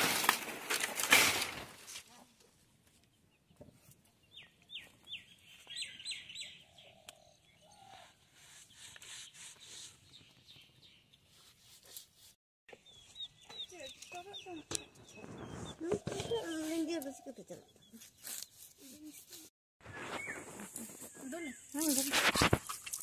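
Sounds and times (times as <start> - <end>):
small bird chirping: 3.1 - 11.6, 12.7 - 22.1.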